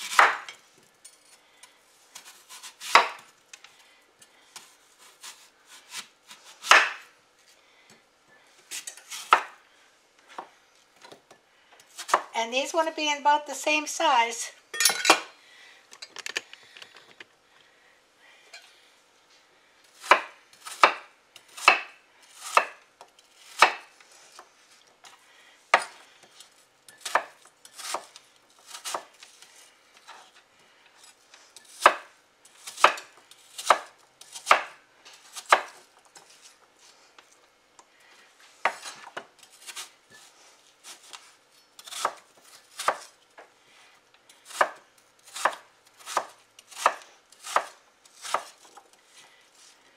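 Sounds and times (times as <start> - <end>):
knife chopping on wooden board: 0.0 - 0.5, 2.2 - 3.2, 5.1 - 7.0, 9.1 - 9.6, 20.0 - 21.9, 22.5 - 22.8, 23.5 - 23.9, 31.7 - 34.8, 35.4 - 35.8, 44.5 - 48.8.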